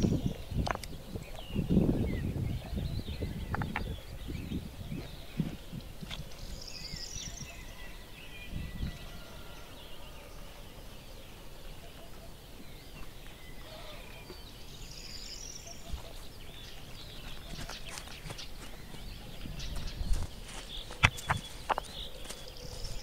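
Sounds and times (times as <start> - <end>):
birds chirping and warbling: 0.0 - 23.0
sharp clicks and knocks: 20.9 - 22.0.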